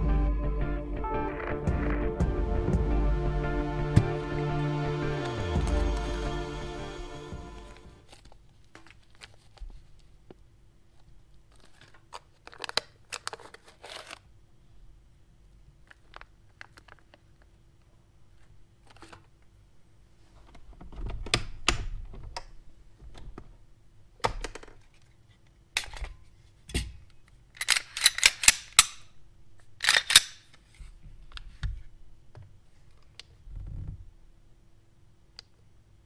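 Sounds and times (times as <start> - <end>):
pistol action metallic clicks: 27.6 - 29.1, 29.8 - 30.5.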